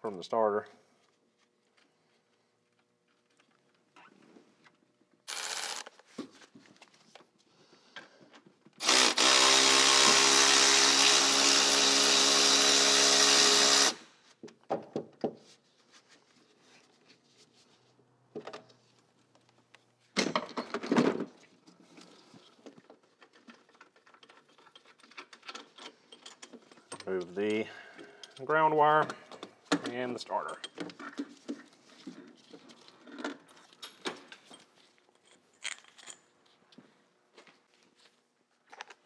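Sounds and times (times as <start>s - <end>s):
cordless power tool spinning: 5.3s - 6.0s, 8.8s - 14.1s.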